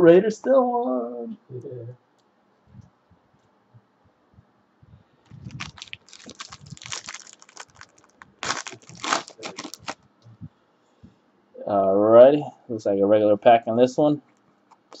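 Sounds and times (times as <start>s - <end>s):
foil wrapper crinkling and tearing: 5.4s - 10.0s.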